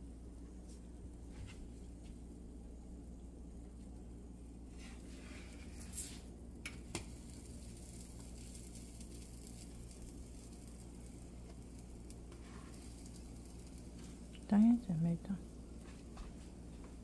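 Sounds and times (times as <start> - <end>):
steady low hum: 0.0 - 17.0
pancake batter sizzling: 4.4 - 17.0
spatula scraping pan: 4.7 - 6.3, 12.3 - 12.9.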